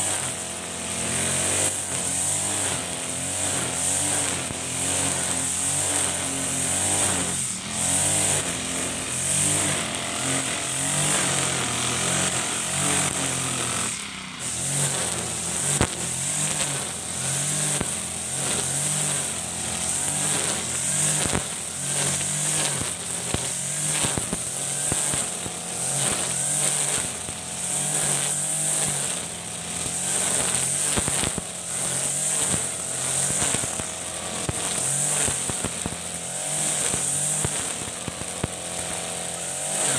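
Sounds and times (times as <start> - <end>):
brush cutter engine whine: 0.0 - 39.9
cutting line ticking on stems: 0.0 - 39.9.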